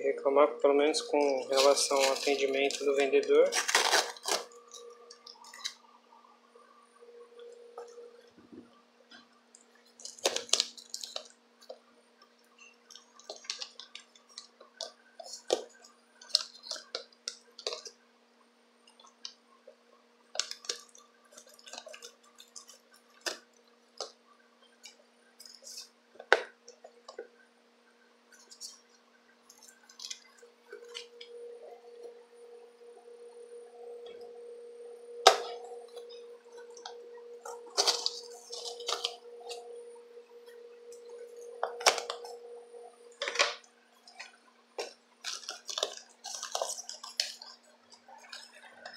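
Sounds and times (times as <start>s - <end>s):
faint steady hum: 0.0s - 48.9s
knife cutting packing tape: 3.5s - 4.5s.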